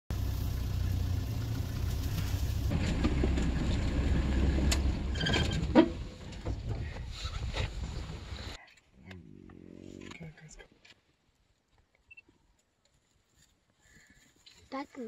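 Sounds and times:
vehicle engine idling: 0:00.1 - 0:07.0.

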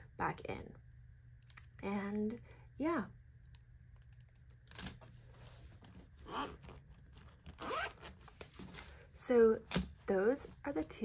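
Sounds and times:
zipper pulled closed: 0:06.1 - 0:08.7.

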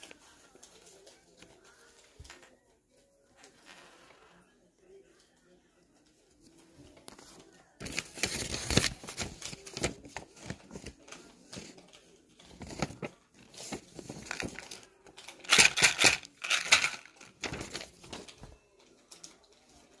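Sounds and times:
paper rustling and crinkling: 0:06.5 - 0:20.0.

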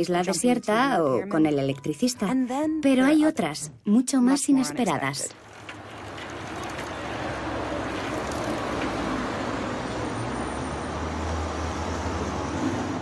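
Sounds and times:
city road traffic: 0:03.7 - 0:13.0.

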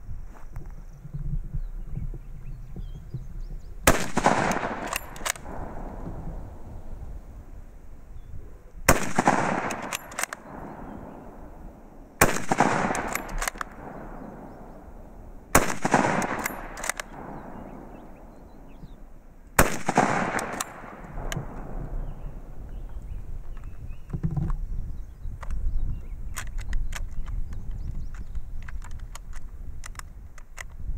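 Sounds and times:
rifle shots with rolling echo: 0:03.8 - 0:07.9, 0:08.8 - 0:23.5
sharp bolt clicks: 0:03.9 - 0:06.0, 0:08.9 - 0:11.2, 0:12.2 - 0:14.8, 0:15.5 - 0:22.0, 0:26.3 - 0:30.8.

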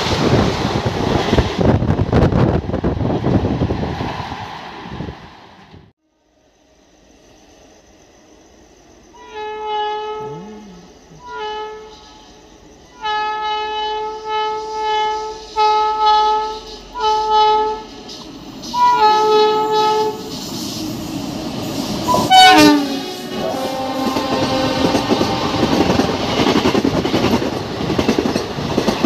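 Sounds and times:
rumble of oncoming train: 0:00.0 - 0:29.0
train horn blasts: 0:09.2 - 0:17.9, 0:18.7 - 0:20.3, 0:22.1 - 0:26.5.

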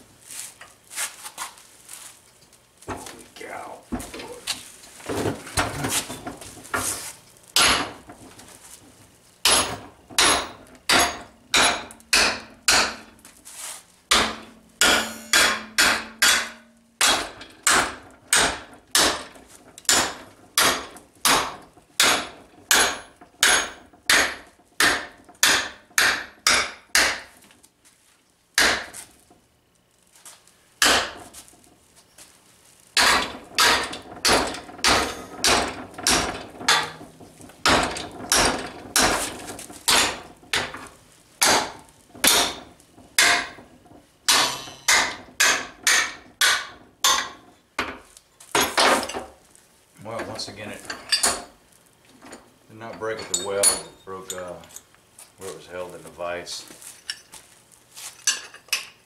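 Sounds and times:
hammer blows on metal: 0:14.1 - 0:17.8.

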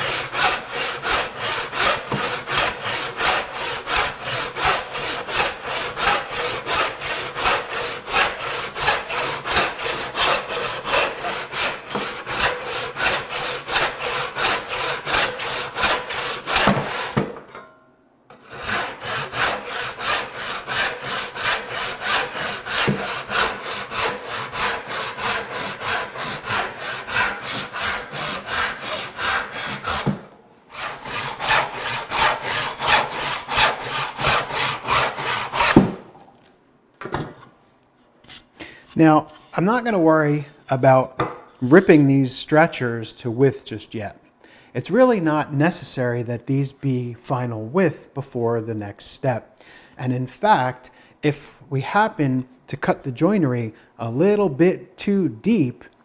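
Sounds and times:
hand saw cutting wood: 0:00.0 - 0:17.4, 0:18.3 - 0:36.0.

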